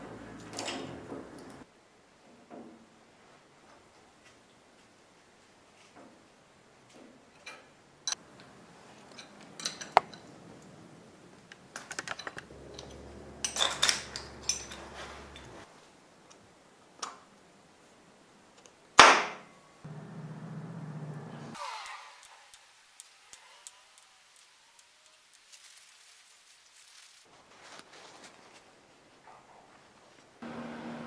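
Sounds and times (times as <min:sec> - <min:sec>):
metallic tool clicks and clinks: 0:09.1 - 0:10.3, 0:12.1 - 0:15.5.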